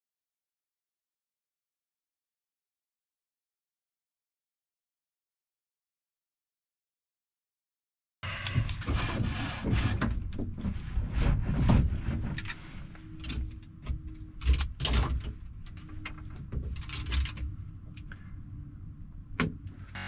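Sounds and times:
faint steady hum: 12.4s - 20.0s.

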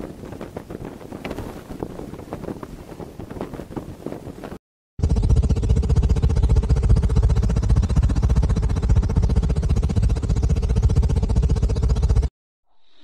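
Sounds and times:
held hum: 0.0s - 13.0s
pulsing low rumble: 5.0s - 12.3s.

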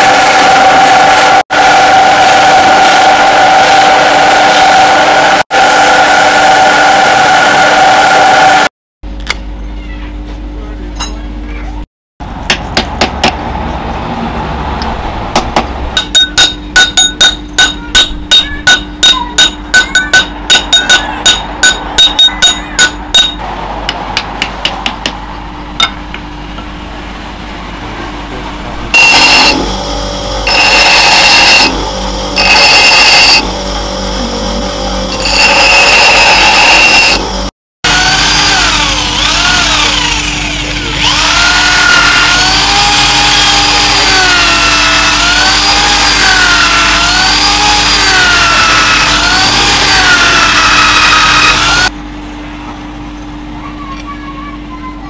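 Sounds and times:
power tool running: 0.0s - 8.7s, 28.4s - 52.0s
hammer striking steel anvil: 15.4s - 25.2s, 25.8s - 26.2s
electric drill spinning: 29.0s - 51.9s.

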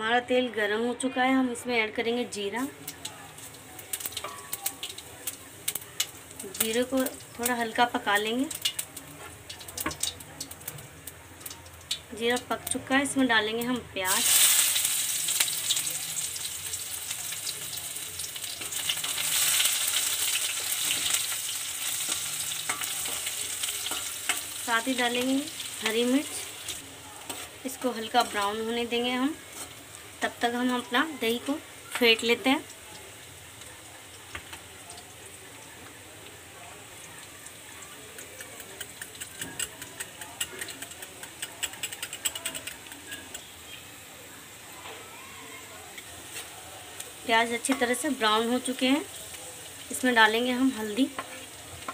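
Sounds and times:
onion sizzling in oil: 0.5s - 51.9s
spoon stirring in pan: 17.2s - 24.6s, 25.2s - 28.6s, 38.1s - 43.6s.

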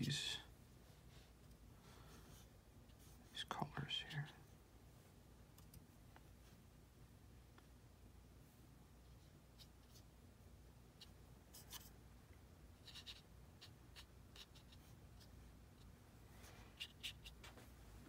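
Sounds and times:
low steady hum: 0.0s - 18.0s
brush scratching on paper: 12.8s - 15.9s.

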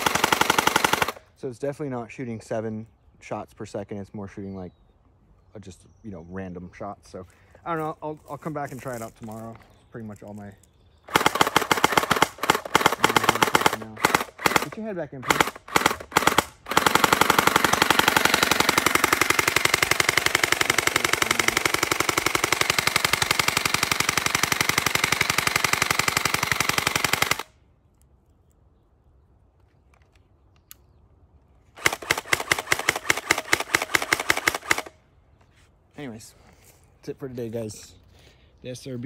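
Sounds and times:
gel blaster rapid clicks: 0.0s - 1.2s, 11.1s - 27.5s, 31.8s - 34.9s.

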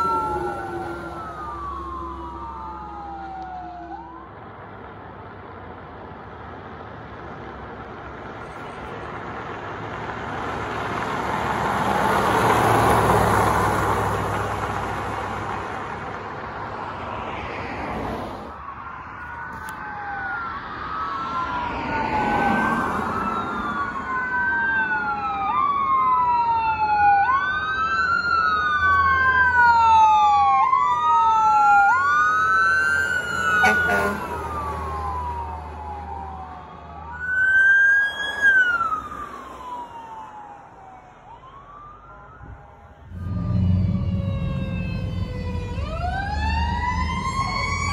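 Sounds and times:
fire engine siren wailing: 0.0s - 5.3s, 7.8s - 17.8s, 18.5s - 47.9s
fire engine rumbling: 0.0s - 47.9s
vehicle passing: 6.6s - 18.6s, 32.0s - 47.9s.

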